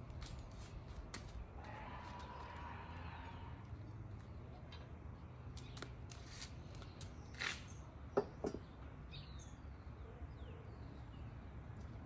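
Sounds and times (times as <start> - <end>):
small birds chirping: 4.1 - 12.0.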